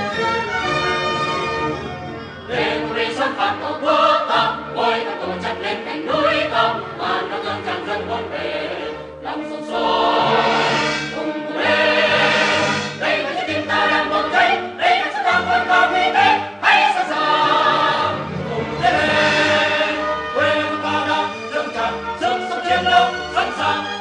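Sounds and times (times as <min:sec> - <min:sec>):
choir singing: 0:02.5 - 0:24.0.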